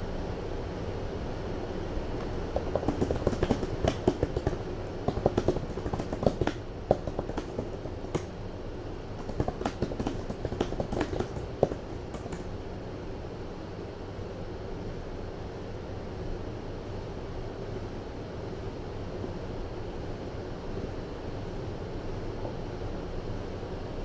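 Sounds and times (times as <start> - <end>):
laptop keyboard typing: 2.2 - 8.3, 9.2 - 12.5.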